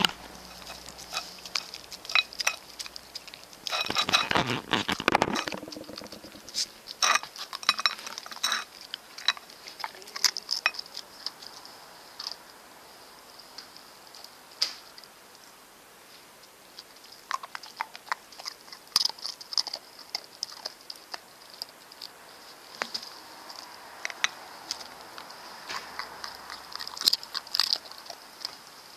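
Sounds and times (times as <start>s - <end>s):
dog licking and chewing: 0.0s - 12.4s, 16.4s - 28.9s
clicks and knocks against plate: 3.7s - 10.9s.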